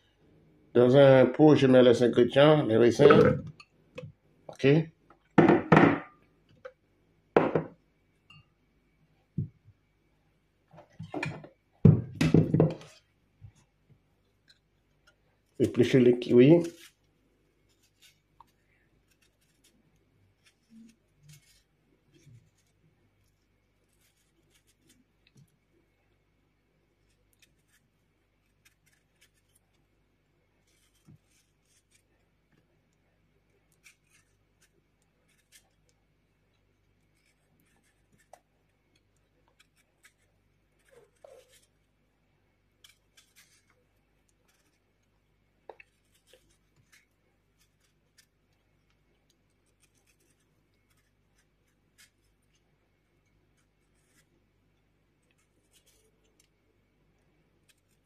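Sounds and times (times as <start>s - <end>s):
low room hum: 0.0s - 58.0s
knife scraping fruit skin: 15.4s - 25.6s, 27.0s - 29.9s, 30.5s - 32.6s, 33.5s - 42.0s, 42.7s - 52.6s, 53.5s - 54.4s, 55.2s - 56.5s, 57.6s - 58.0s.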